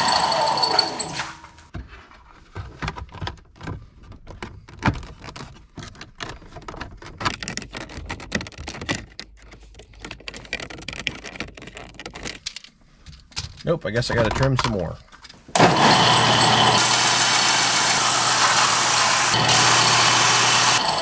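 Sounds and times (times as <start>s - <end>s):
plastic trim clicking and scraping: 2.8s - 14.8s.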